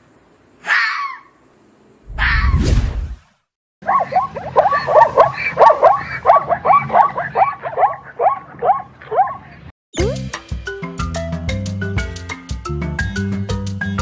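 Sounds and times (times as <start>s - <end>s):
animal barking calls: 0.6s - 1.4s, 3.8s - 9.7s
bright marimba music: 10.0s - 14.0s.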